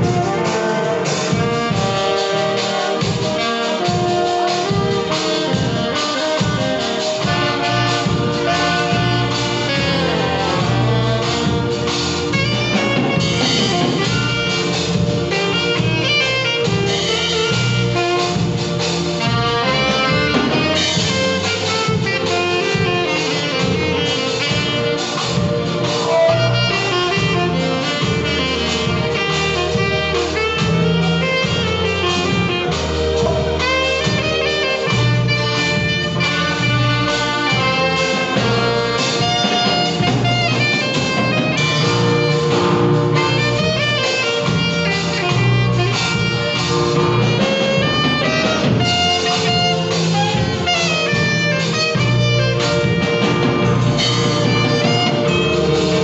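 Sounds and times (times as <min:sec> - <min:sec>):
alto saxophones playing gospel melody: 0:00.0 - 0:56.0.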